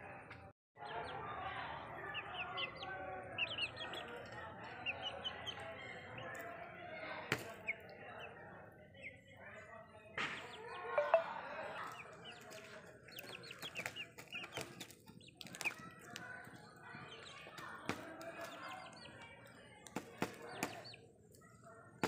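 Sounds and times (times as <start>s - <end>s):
chicks making short high calls: 0.8s - 6.6s, 10.4s - 21.0s.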